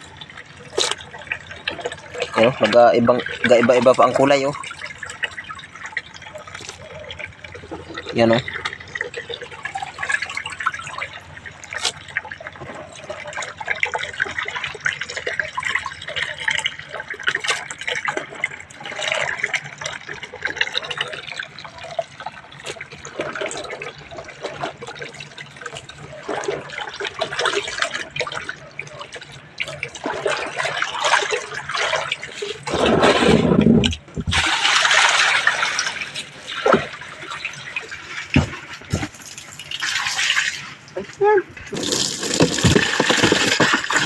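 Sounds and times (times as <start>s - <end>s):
water gushing into plastic tub: 0.0s - 44.0s
small wet clicks and knocks: 0.3s - 31.8s, 41.0s - 44.0s.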